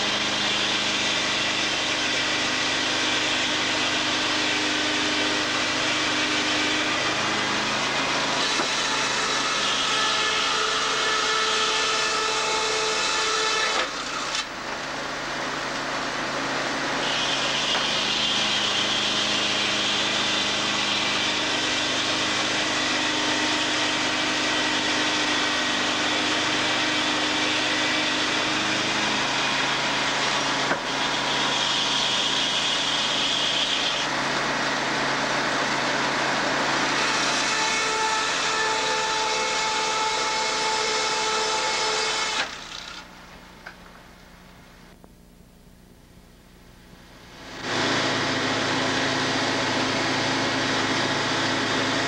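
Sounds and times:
saw cutting along a board: 0.0 - 14.5, 15.4 - 43.1, 47.5 - 52.0
mill machinery running: 47.5 - 52.0.

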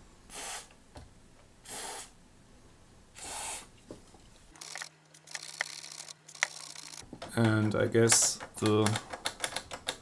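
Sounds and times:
aerosol spray hissing: 0.3 - 0.7, 1.6 - 2.2, 3.2 - 3.7.

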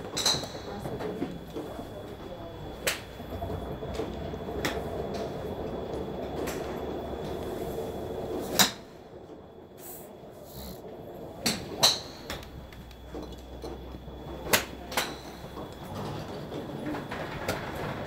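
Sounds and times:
golf clubs striking balls: 0.0 - 2.0, 2.6 - 5.4, 8.4 - 9.0, 11.4 - 17.6
low background hum: 0.0 - 18.0.

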